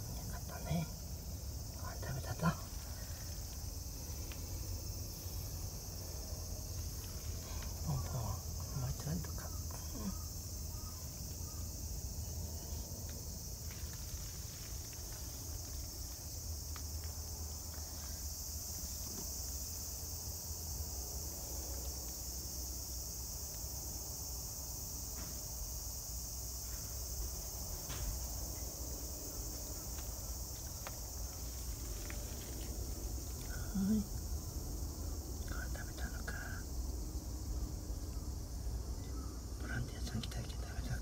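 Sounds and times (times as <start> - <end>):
insects chirring: 0.0 - 41.0
faint ticks: 2.7 - 4.6, 12.6 - 18.1, 29.6 - 34.0.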